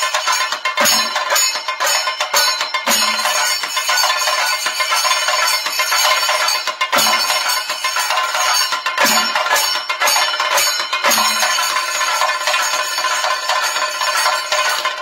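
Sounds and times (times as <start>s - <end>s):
drum rolls struck with sticks: 0.0s - 15.0s.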